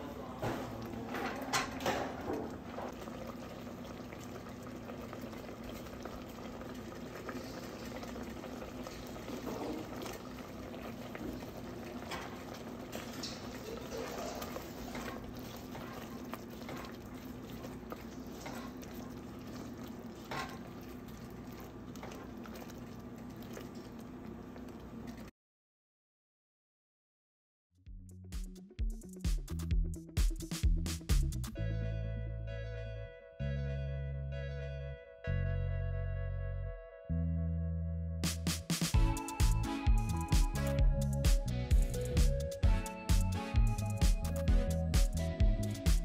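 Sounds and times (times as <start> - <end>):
thick sauce bubbling in a pot: 0.0 - 25.3
spatula stirring sauce: 12.9 - 24.7.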